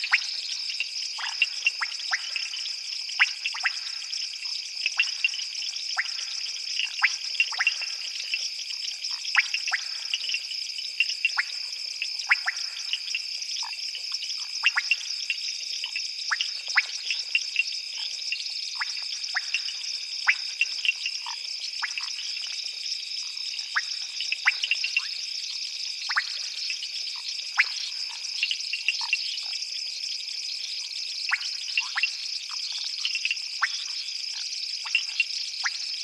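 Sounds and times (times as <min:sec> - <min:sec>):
sharp frog calls: 0:00.0 - 0:30.1, 0:31.2 - 0:36.0.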